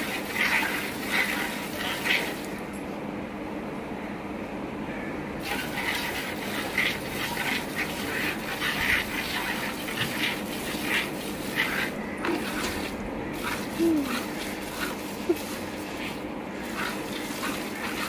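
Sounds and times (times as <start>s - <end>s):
milk squirting into steel pail: 0.0s - 2.5s, 5.4s - 18.0s.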